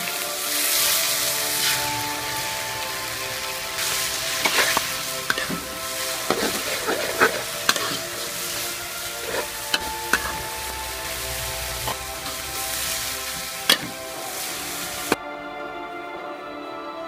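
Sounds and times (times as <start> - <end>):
stir-fry sizzling in a wok: 0.0 - 15.2
spatula scraping a pan: 3.7 - 15.2.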